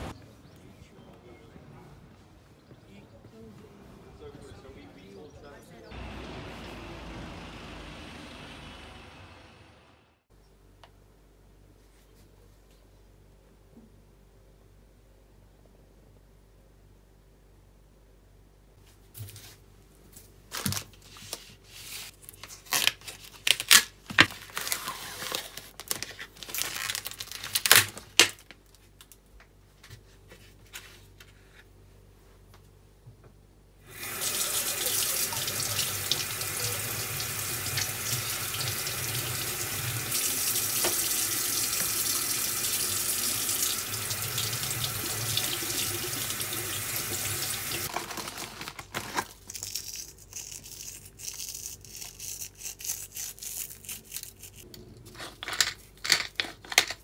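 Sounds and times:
kitchen tap running into sink: 33.9s - 47.9s
objects being handled: 47.9s - 57.0s.

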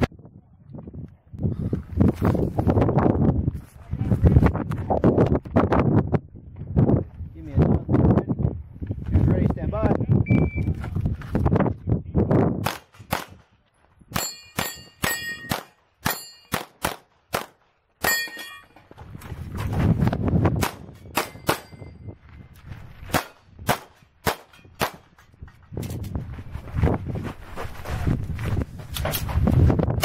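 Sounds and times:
rapid pistol shots: 12.6s - 13.5s, 14.2s - 18.2s, 23.1s - 25.1s
steel targets dinging: 14.1s - 16.6s, 18.0s - 18.8s, 21.0s - 22.1s.

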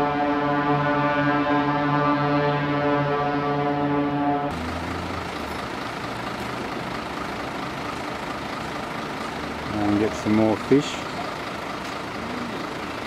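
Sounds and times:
diesel truck engine idling: 4.5s - 13.0s.

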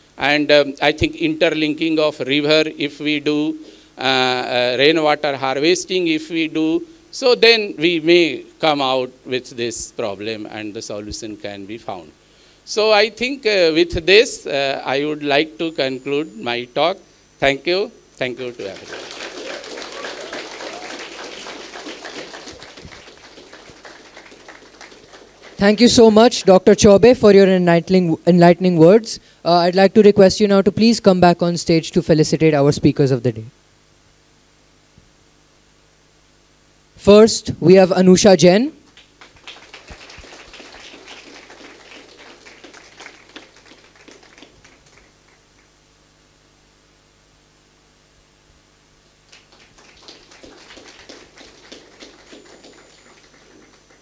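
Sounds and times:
audience applauding: 18.5s - 26.0s, 38.9s - 45.7s, 49.3s - 54.0s.

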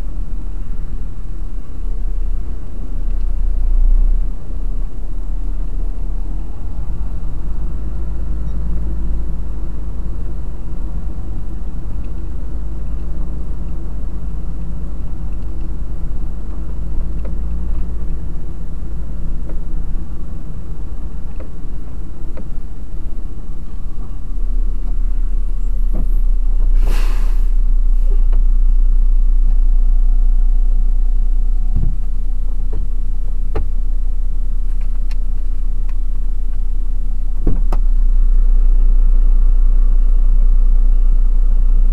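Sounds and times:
truck engine running: 0.0s - 41.9s
short hiss: 26.7s - 28.2s.

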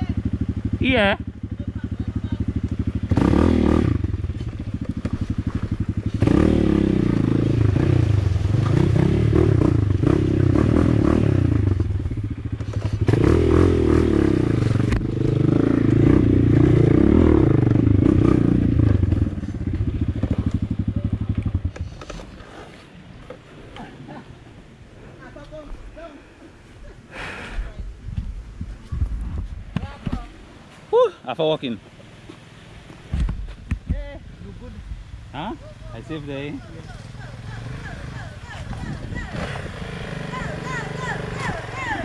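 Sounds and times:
motorcycle engine revving: 0.0s - 22.7s, 35.6s - 42.0s.

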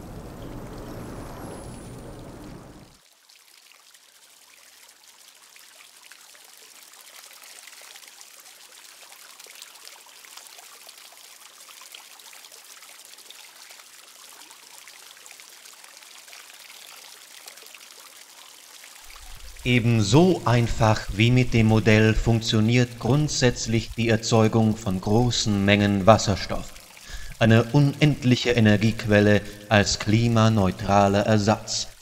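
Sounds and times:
water fizzing with bubbles: 0.0s - 32.0s.

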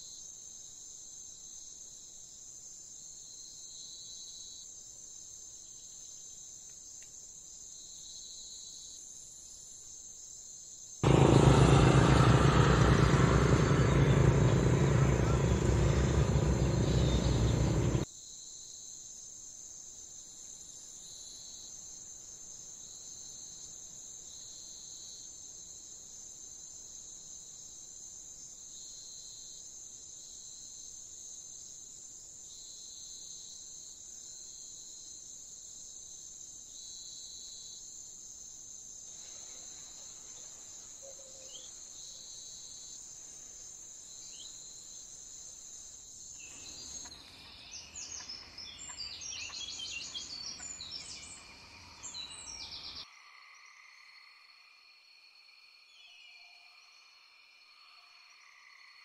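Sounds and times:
insect trill: 0.0s - 59.0s
rapid bird chirping: 13.5s - 18.0s.

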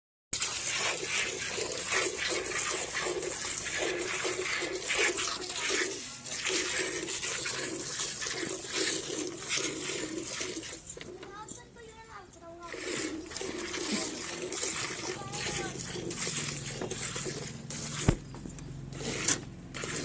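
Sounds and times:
milk squirting into pail: 0.4s - 11.1s, 12.6s - 18.3s, 18.9s - 20.0s.

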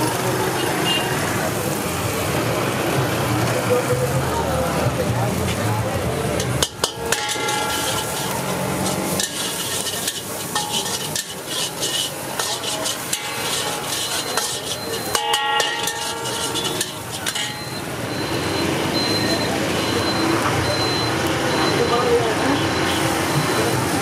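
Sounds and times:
constant sizzling: 0.0s - 24.0s
ringing metal clangs: 6.4s - 8.5s, 12.4s - 17.8s
ladle scraping a wok: 6.4s - 18.2s.

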